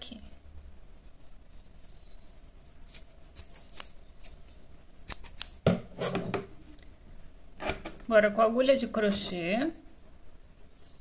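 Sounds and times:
scissors snipping thread: 0:05.1 - 0:05.6.

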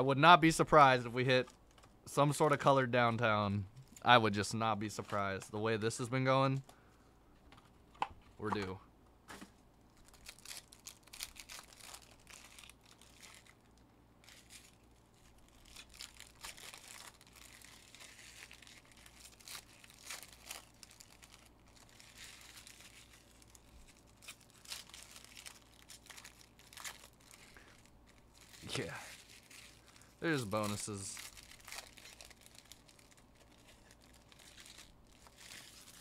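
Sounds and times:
foil wrappers tearing and crackling: 0:10.0 - 0:36.0.

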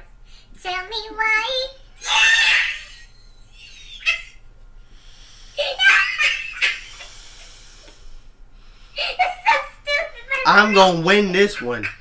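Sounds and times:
man laughing: 0:10.5 - 0:12.0.

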